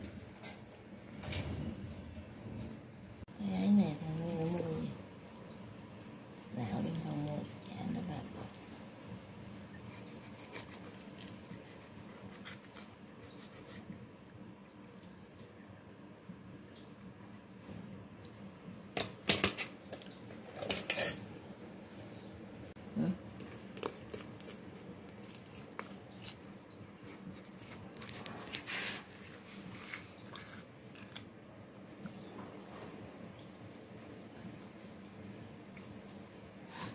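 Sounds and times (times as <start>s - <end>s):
cleaver scraping fish bones: 9.9s - 13.9s.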